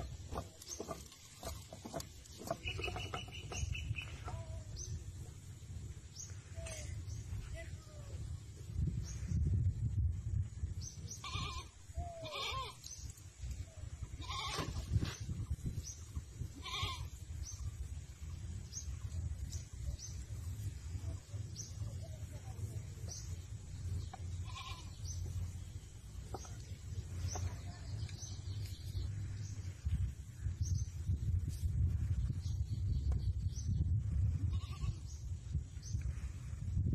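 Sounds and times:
steady low rumble: 0:03.6 - 0:36.9.

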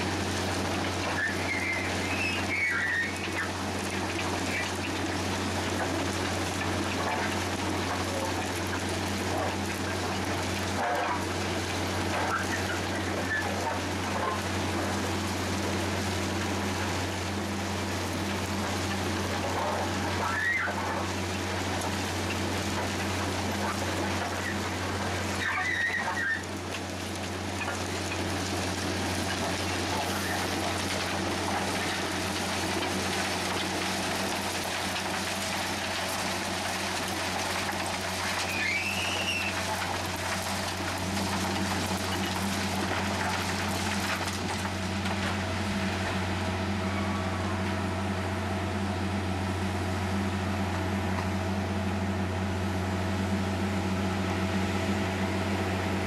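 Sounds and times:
brief squeal: 0:01.1 - 0:03.5, 0:38.4 - 0:39.6.

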